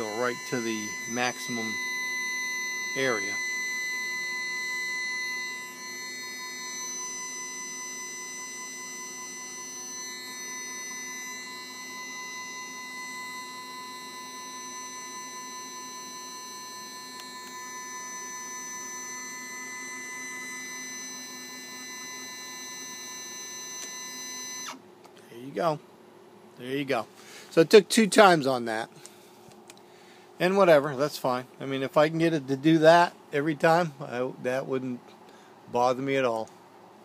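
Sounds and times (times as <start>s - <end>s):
stepper motors whining: 0.0s - 24.8s.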